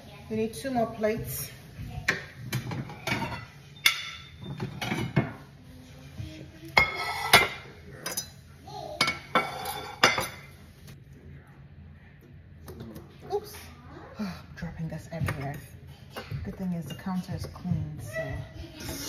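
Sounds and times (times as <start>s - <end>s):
ceramic plates clinking: 2.1s - 5.4s, 6.8s - 8.4s, 9.0s - 10.6s.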